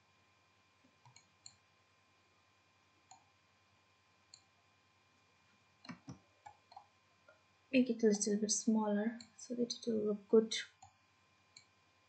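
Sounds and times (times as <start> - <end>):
computer mouse clicks: 1.0 - 1.6, 3.1 - 3.3.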